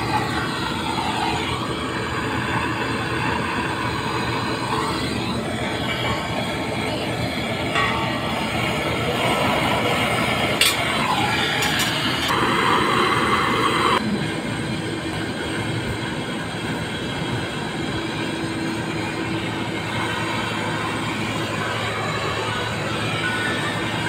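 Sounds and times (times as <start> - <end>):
gas torch hissing: 0.0 - 24.0.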